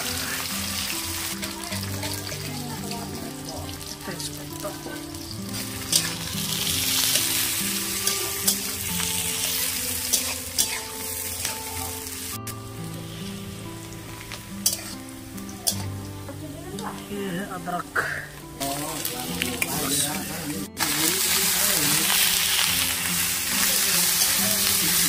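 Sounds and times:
onions sizzling in oil: 0.0 - 25.0
slow background music: 0.0 - 25.0
metal spatula scraping pan: 5.2 - 11.8, 14.6 - 15.1.

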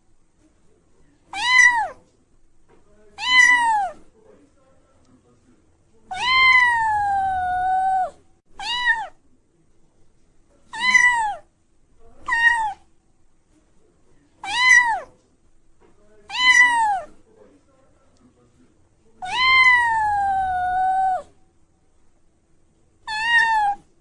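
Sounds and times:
cat meowing: 1.3 - 2.0, 3.2 - 4.0, 6.1 - 9.2, 10.7 - 11.5, 12.2 - 12.9, 14.4 - 15.1, 16.3 - 17.1, 19.2 - 21.4, 23.0 - 23.9.

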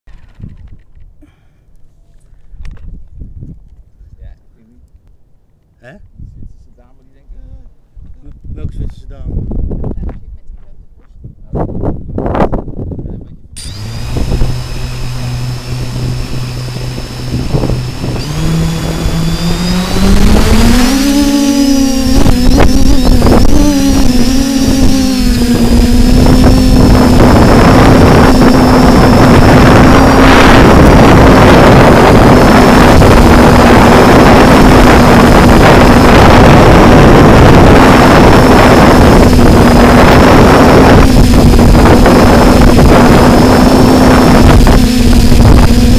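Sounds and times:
drone motors humming and whining: 13.6 - 45.9
rushing air noise: 13.6 - 45.9.

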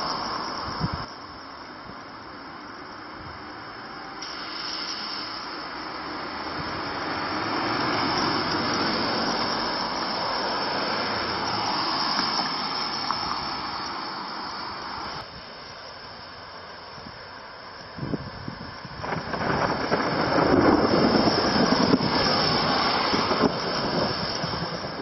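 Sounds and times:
tyres hissing on wet road: 0.0 - 25.0.

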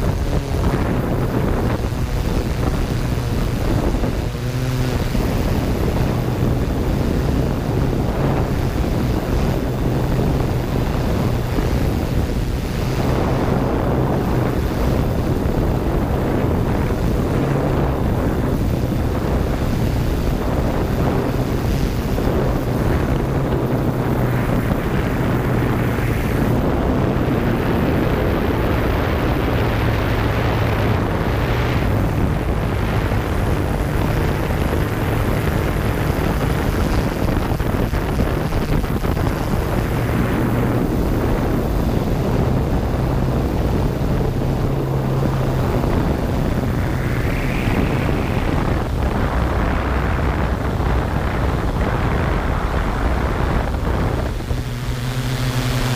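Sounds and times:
drone propellers buzzing: 0.0 - 55.9.

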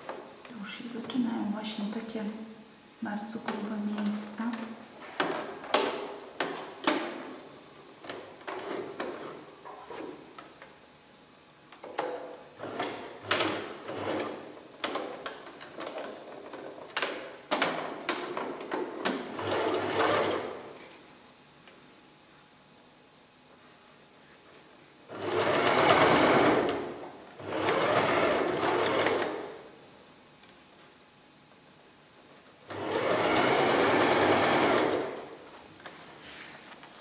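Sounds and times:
sewing machine stitching: 12.6 - 15.1, 19.1 - 20.6, 25.1 - 29.6, 32.7 - 35.4.

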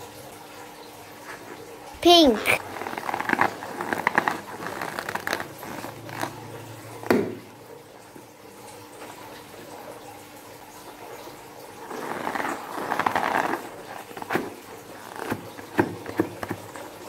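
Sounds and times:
hands squeezing slime balloon: 2.3 - 7.3, 11.8 - 16.7.

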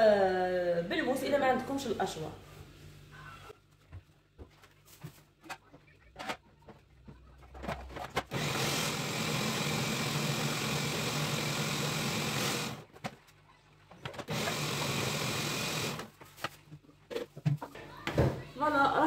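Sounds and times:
food processor motor chopping: 8.3 - 12.9, 14.3 - 16.1.

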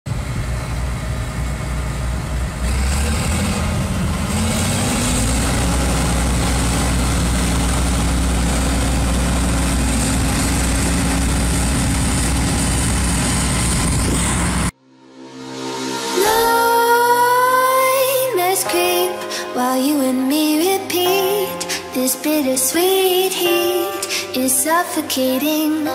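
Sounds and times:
combine harvester engine hum: 0.1 - 14.8.

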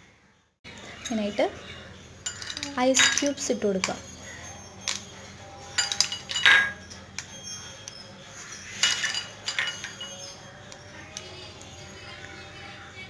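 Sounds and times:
spoon and ice clinking glass: 2.2 - 12.2.

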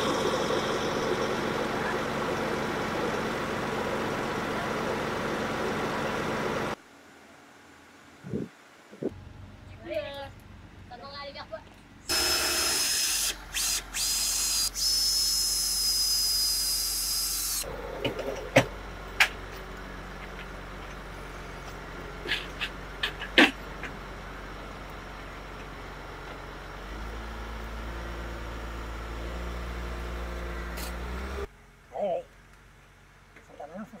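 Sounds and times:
power tool whining: 0.0 - 4.2, 12.1 - 17.7
crane engine hum: 0.0 - 33.4.

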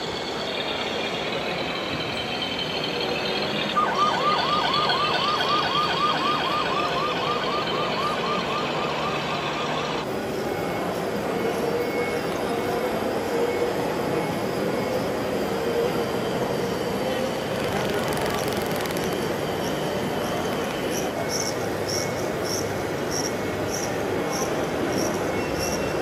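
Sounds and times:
steady background din: 0.0 - 26.0
electronic siren yelping: 3.7 - 10.0, 17.5 - 21.4.

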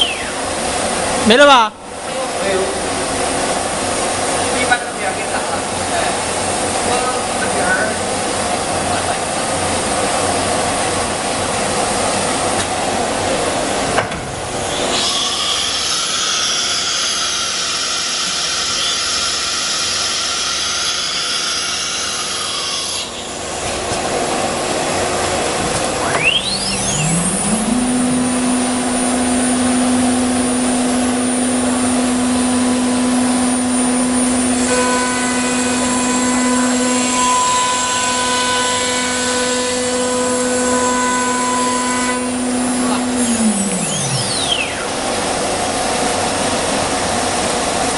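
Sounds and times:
cnc wood router running: 0.0 - 47.9
spindle whine spinning up: 24.8 - 47.9.

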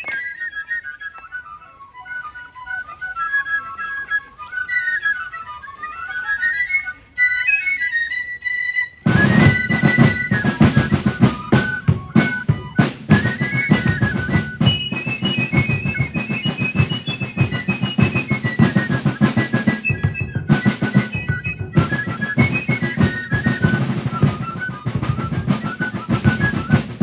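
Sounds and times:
snare and bass drums: 9.0 - 27.0.

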